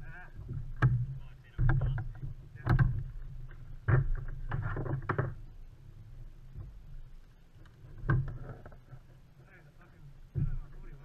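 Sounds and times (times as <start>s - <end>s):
fishing gear knocking and rattling: 0.0s - 5.5s, 7.6s - 9.3s.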